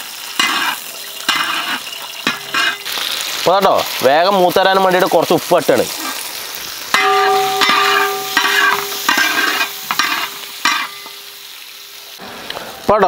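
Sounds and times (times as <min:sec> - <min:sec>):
light sizzle of frying: 0:00.0 - 0:13.0
metal spatula scraping a pan: 0:00.4 - 0:02.9, 0:06.9 - 0:11.2
steady ringing tone: 0:07.0 - 0:09.7.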